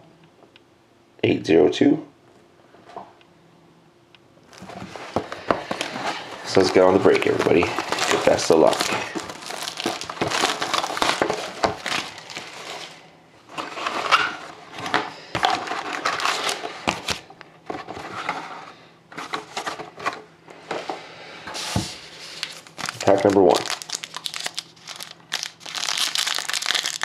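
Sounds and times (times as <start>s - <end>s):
plastic and cardboard crinkling: 4.4s - 18.5s, 21.6s - 27.0s
foil packs handled: 4.5s - 13.0s, 14.8s - 17.3s, 21.7s - 27.0s.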